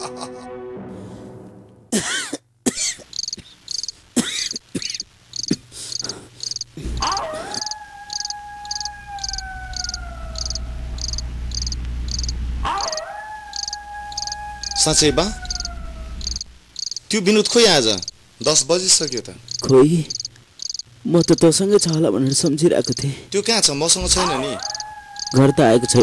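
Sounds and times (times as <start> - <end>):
crickets chirping: 2.7 - 26.0
low hum with sliding tone: 6.8 - 16.7.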